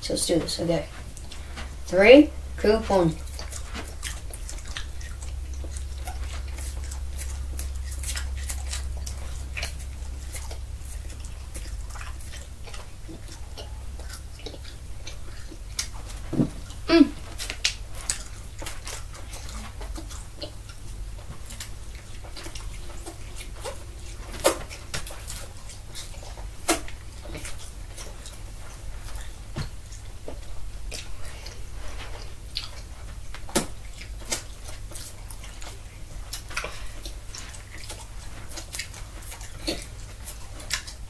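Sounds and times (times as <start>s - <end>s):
children chewing and sucking: 0.0s - 41.0s.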